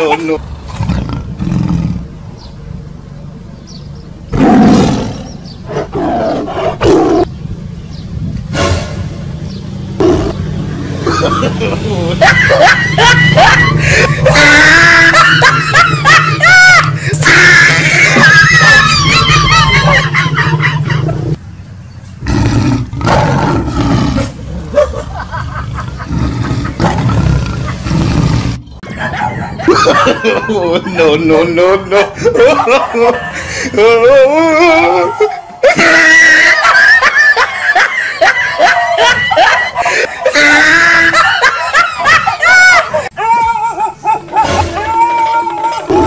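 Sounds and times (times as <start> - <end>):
tiger roaring: 0.4 - 2.1, 4.3 - 7.3, 22.2 - 24.8, 26.0 - 28.7.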